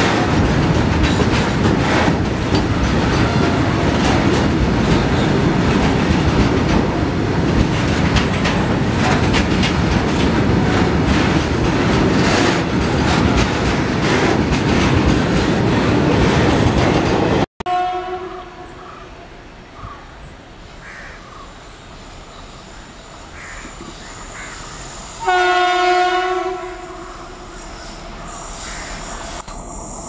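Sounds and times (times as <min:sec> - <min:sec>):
clickety-clack over rail joints: 0:00.0 - 0:17.5
freight train wheels rumbling on rails: 0:00.0 - 0:18.2, 0:21.4 - 0:30.0.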